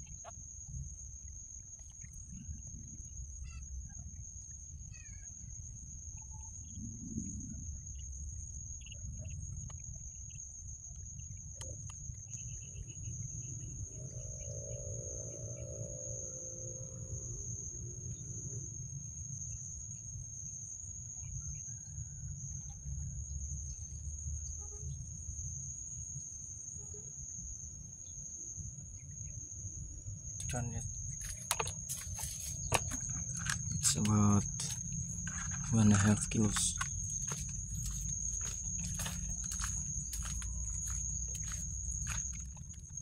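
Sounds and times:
high-pitched insect drone: 0.0s - 43.0s
faint bird chirps: 1.8s - 4.2s, 4.8s - 8.1s.

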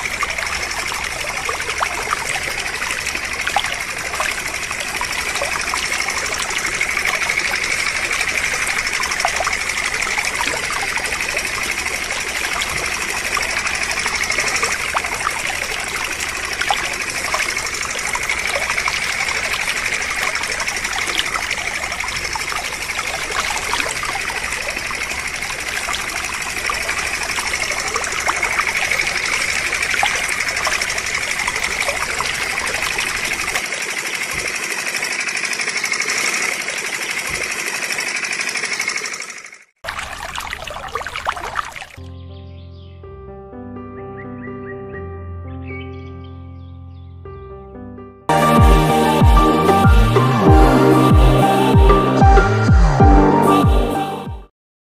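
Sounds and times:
water trickling onto plastic toys: 0.0s - 42.0s.

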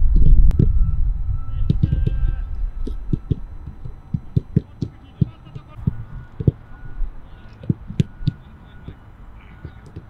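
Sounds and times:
footballs kicked thudding: 1.6s - 6.6s.

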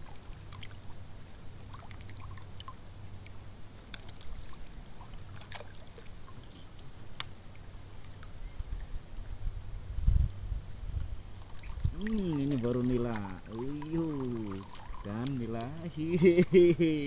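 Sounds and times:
water lapping and sloshing: 0.0s - 2.8s, 3.8s - 8.9s, 11.3s - 16.6s.

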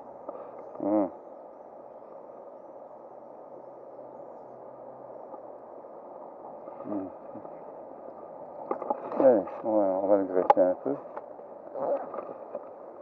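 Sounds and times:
man humming: 0.8s - 1.2s, 6.8s - 7.2s.

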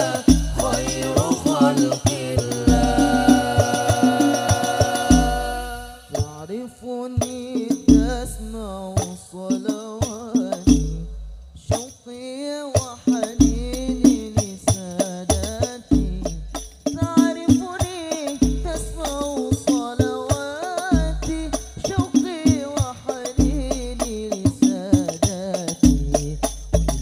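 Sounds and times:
deep bass drum stroke: 0.0s - 6.3s
man singing devotional song: 0.0s - 26.7s.

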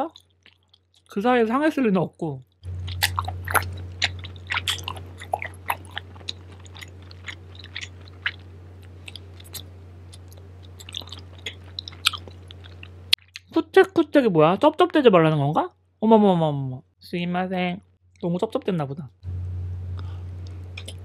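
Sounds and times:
person chewing food: 0.0s - 1.1s, 2.5s - 13.5s, 20.0s - 21.0s
low electrical hum: 0.0s - 21.0s
smacking mouth clicks: 20.4s - 21.0s.

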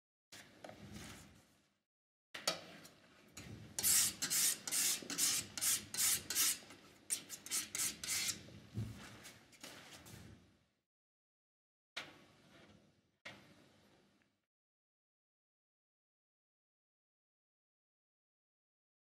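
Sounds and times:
painting tool scraping on palette: 3.8s - 8.4s.

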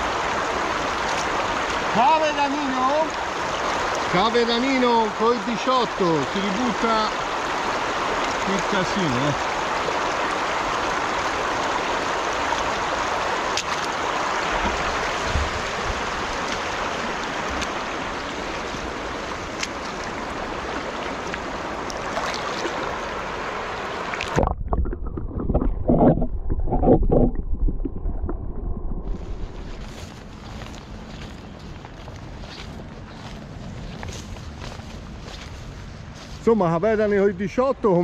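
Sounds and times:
river flowing over stones: 0.0s - 27.4s
muffled underwater gurgling: 24.3s - 29.8s.

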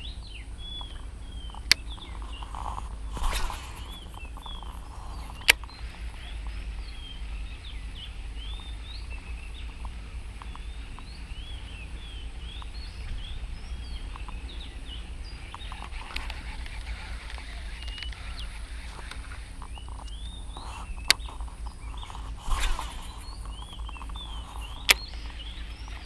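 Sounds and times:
birds chirping: 0.0s - 26.0s
sharp click: 0.7s - 6.4s, 15.5s - 26.0s
fishing rod swishing: 2.6s - 4.3s, 22.1s - 23.4s.

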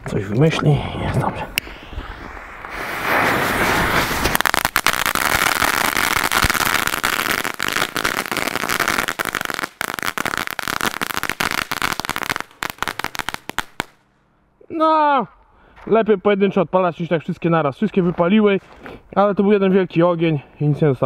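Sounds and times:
fireworks crackling pops: 1.5s - 14.0s
fireworks sparks hissing: 1.6s - 14.0s.

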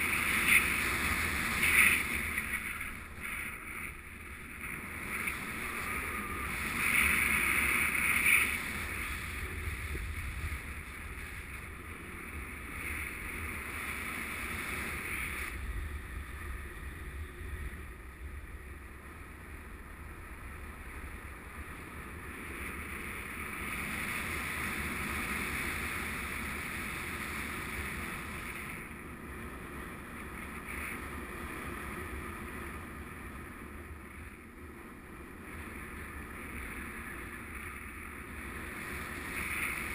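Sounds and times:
wind buffeting microphone: 0.0s - 29.4s.

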